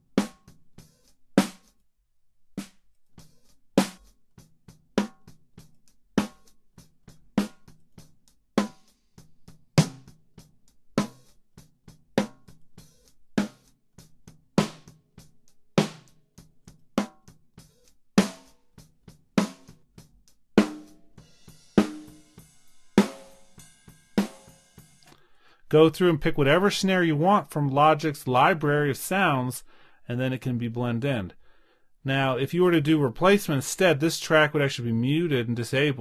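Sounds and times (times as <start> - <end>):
snare drum backbeat: 9.8 - 10.2, 14.6 - 15.0, 15.8 - 16.2, 20.6 - 22.4, 23.0 - 24.9.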